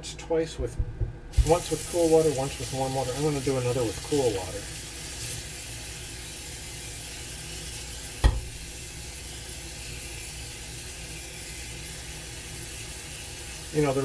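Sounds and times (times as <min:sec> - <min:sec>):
tap water running into bowl: 0:01.3 - 0:14.0
sharp knock: 0:08.2 - 0:08.5.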